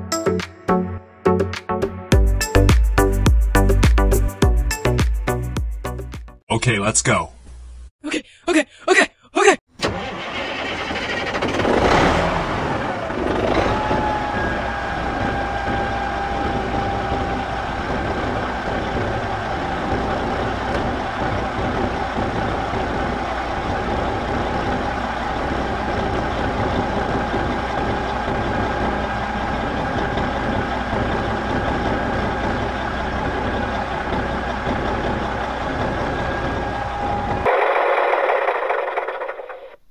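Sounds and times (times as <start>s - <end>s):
tractor engine running: 9.8s - 39.9s
constant whine: 12.8s - 39.8s.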